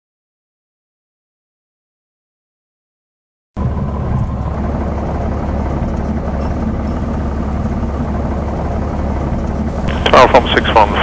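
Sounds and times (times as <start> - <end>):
aircraft engine drone: 3.6 - 11.0.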